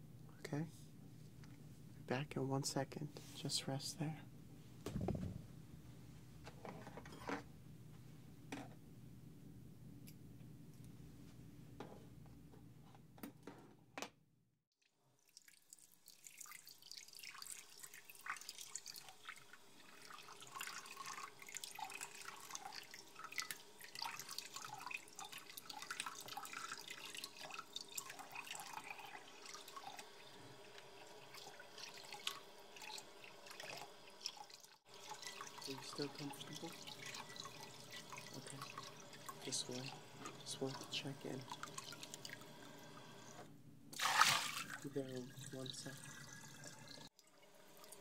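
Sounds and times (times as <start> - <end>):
water dripping into a sink: 15.2 - 42.8.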